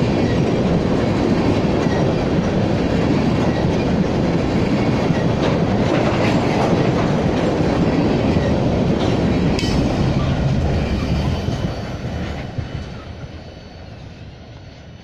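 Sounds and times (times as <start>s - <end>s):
train wheels rumbling on rails: 0.0s - 15.0s
sharp rail click: 8.4s - 10.4s.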